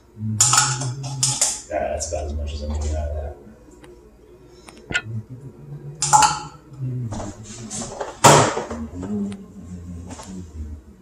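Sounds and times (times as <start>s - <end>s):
dishes clinking and knocking: 0.4s - 1.7s, 6.0s - 6.6s.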